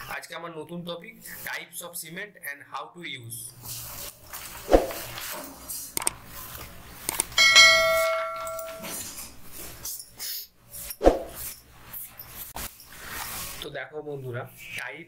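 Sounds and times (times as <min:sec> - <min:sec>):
click: 0:07.1 - 0:07.3
bright bell ding: 0:07.4 - 0:09.1.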